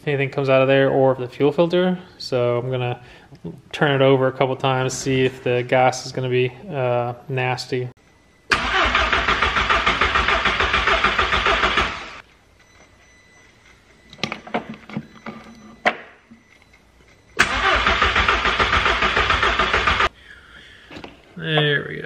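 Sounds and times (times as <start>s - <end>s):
starter cranking car engine: 8.5s - 12.2s, 17.4s - 20.1s.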